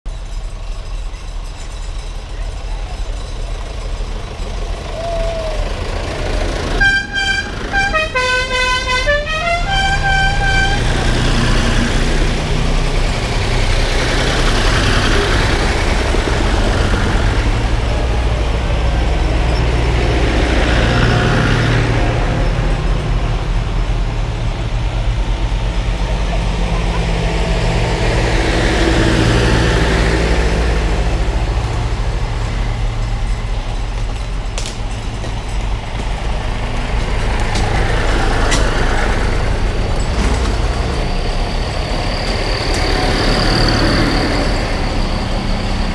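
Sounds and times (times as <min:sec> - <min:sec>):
tractor engines driving past: 0:00.1 - 0:45.9
horn sounding notes: 0:06.8 - 0:11.1.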